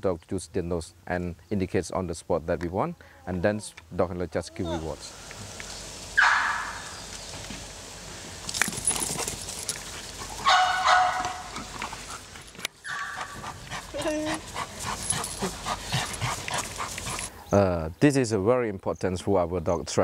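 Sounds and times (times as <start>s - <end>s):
dog yelping: 6.2s - 6.9s, 10.4s - 11.6s, 12.8s - 14.4s
dog whining: 12.9s - 14.4s.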